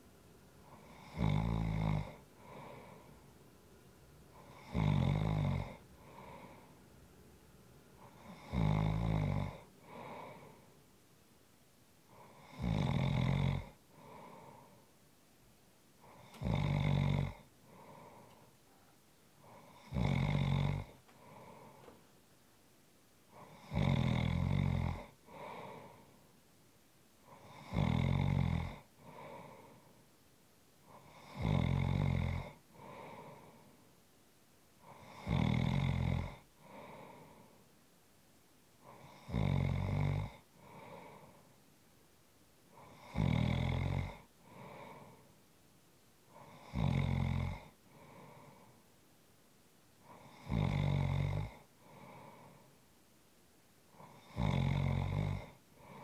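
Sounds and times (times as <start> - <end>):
person snoring: 0.7 - 3.2, 4.3 - 6.7, 8.0 - 10.7, 12.1 - 14.9, 16.0 - 18.5, 19.4 - 21.9, 23.3 - 26.2, 27.3 - 30.0, 30.9 - 33.7, 34.8 - 37.6, 38.8 - 41.5, 42.7 - 45.3, 46.3 - 48.8, 50.0 - 52.7, 53.9 - 56.0.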